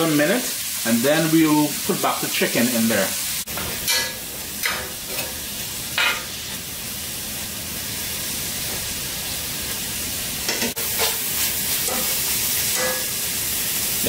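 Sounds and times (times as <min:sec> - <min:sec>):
vegetables sizzling in oil: 0:00.0 - 0:14.0.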